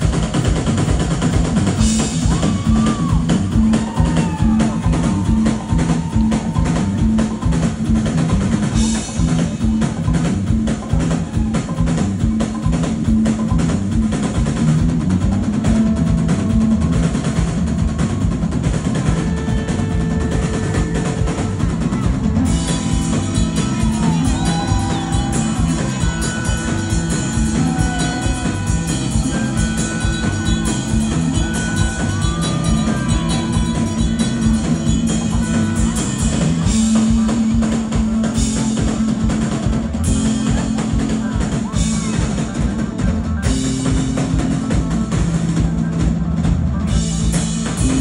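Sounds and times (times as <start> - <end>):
drum kit beat: 0.0 - 48.0
low bass line: 0.0 - 48.0.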